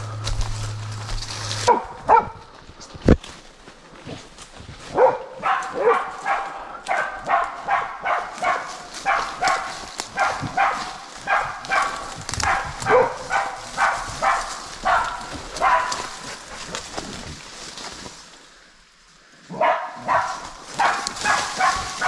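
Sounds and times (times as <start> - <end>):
dog barking: 1.6 - 2.5, 4.9 - 16.4, 19.5 - 22.0.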